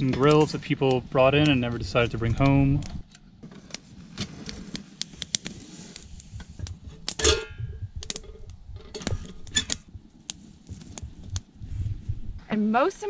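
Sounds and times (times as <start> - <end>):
campfire crackling and popping: 0.0 - 12.9
pot lid and handle clanking: 7.1 - 7.6.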